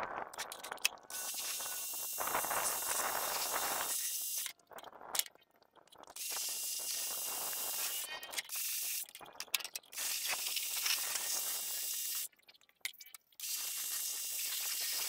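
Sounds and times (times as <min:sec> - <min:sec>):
water spraying from a hose: 0:01.1 - 0:04.4, 0:10.0 - 0:12.3, 0:13.4 - 0:15.0.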